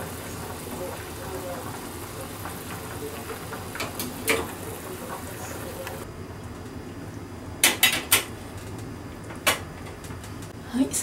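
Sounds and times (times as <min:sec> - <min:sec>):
broth bubbling in a pot: 0:00.0 - 0:06.1.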